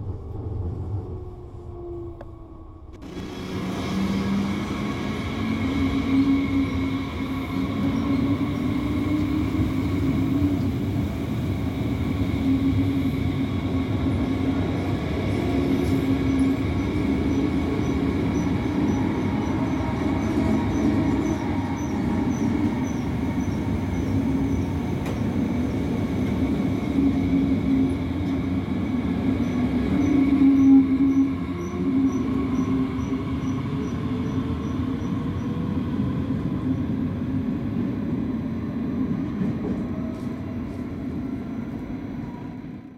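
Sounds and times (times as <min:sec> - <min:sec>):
rising whine: 0:00.0 - 0:04.9
electric train drive hum: 0:00.0 - 0:42.7.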